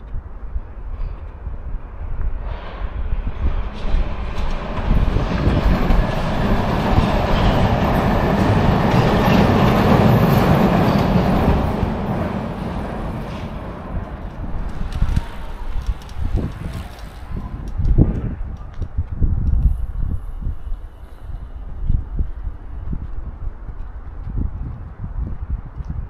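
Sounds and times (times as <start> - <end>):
train passing: 1.8 - 18.6.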